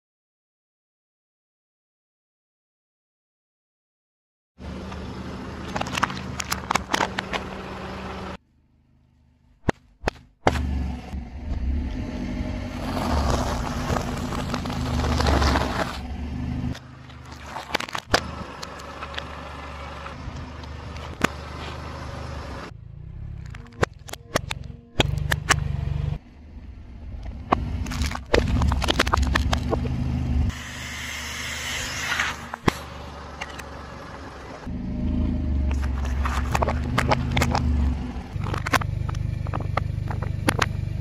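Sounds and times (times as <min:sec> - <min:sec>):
car engine running: 0:04.6 - 0:41.0
tyre crushing objects: 0:12.7 - 0:16.0, 0:27.5 - 0:30.0.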